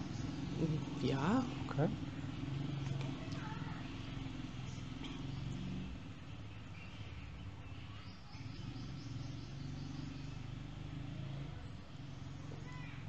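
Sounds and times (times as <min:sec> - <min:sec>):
faint high chirping: 0:03.1 - 0:10.7, 0:11.3 - 0:13.0.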